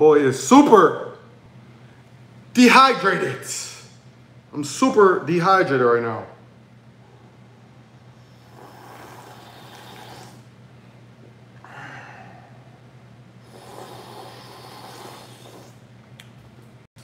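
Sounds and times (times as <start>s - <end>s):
man slurping juice: 8.4s - 10.5s, 13.5s - 15.8s.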